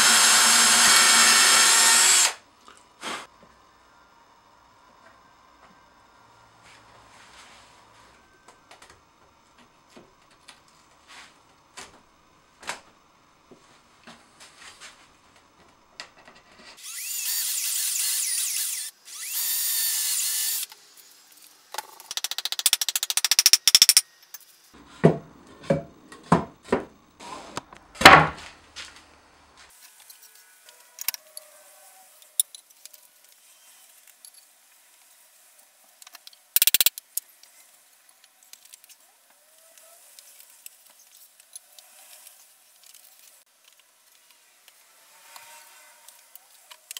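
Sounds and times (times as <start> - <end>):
power tool running: 0.0 - 2.4, 16.8 - 21.3.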